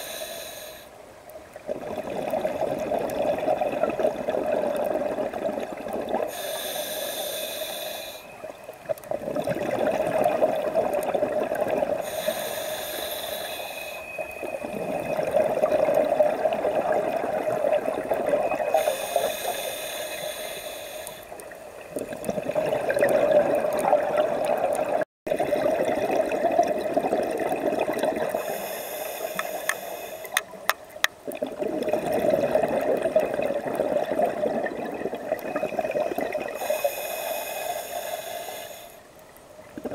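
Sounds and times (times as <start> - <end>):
regulator hissing inhale: 0.0 - 1.0, 6.3 - 8.4, 12.0 - 14.5, 18.7 - 21.5, 28.3 - 30.5, 36.6 - 39.1
exhaled bubbles rushing: 1.7 - 6.3, 9.0 - 12.0, 14.4 - 18.8, 21.9 - 28.5, 31.2 - 36.6.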